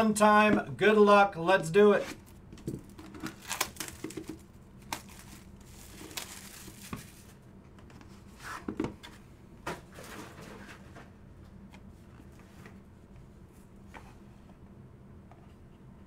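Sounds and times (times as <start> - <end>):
plastic crinkling: 2.2 - 7.4
plastic wrap tearing: 2.2 - 7.4.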